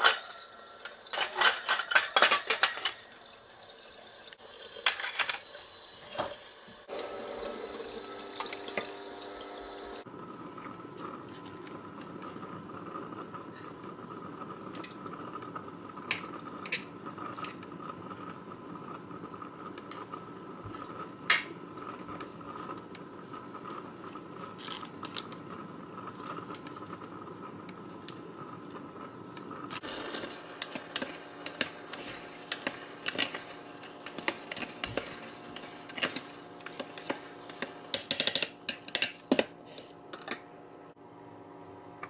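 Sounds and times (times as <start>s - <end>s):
rice paddle scraping a pot: 29.8s - 38.2s
utensils clicking and scraping: 29.8s - 40.4s.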